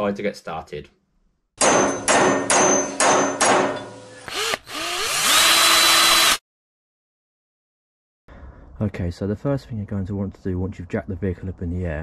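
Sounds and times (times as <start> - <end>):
metallic hammer strikes: 1.6 - 4.2.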